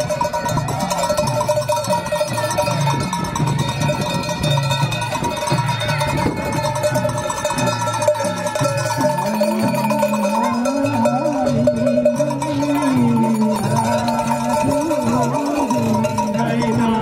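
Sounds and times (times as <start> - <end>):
steady ringing tones: 0.0 - 17.0
person singing: 9.0 - 17.0.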